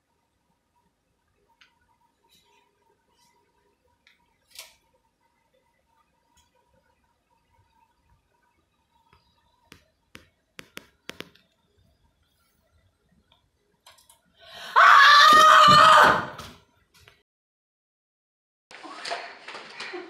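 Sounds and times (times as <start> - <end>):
faint clicks and taps: 9.0 - 11.6
high-pitched scream: 14.6 - 16.4.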